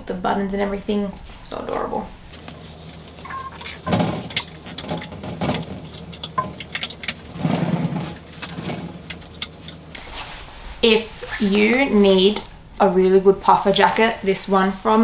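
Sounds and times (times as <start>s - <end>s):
fabric rustling: 9.9s - 12.2s.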